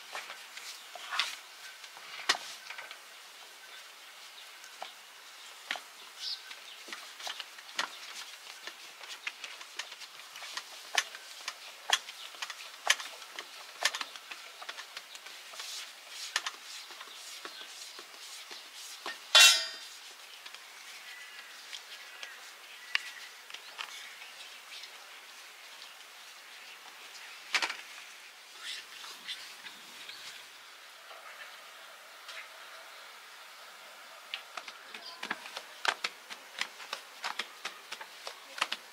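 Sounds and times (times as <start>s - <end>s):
ringing metal clang: 19.4s - 19.8s.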